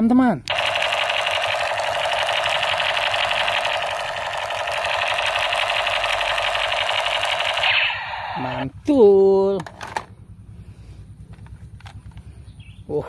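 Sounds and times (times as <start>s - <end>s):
toy gun electronic machine-gun rattle: 0.5s - 8.6s.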